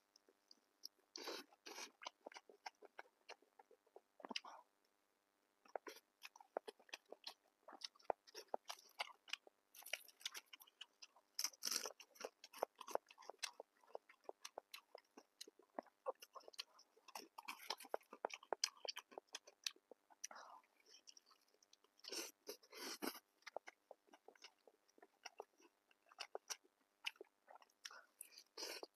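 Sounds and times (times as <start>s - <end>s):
crunchy biting and chewing: 5.7s - 19.9s.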